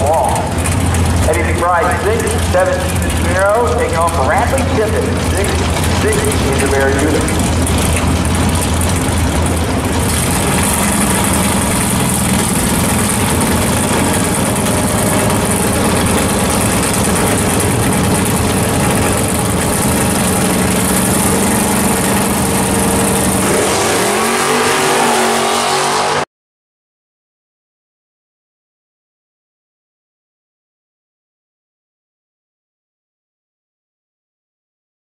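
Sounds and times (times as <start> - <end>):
race car engines running: 0.0 - 26.2.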